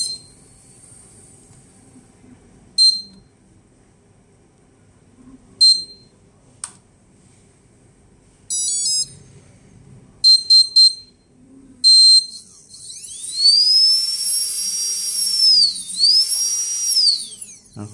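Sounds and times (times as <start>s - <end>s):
electronic start-up beeps: 8.5s - 9.2s, 11.9s - 17.9s
electric motor whine: 12.3s - 17.9s.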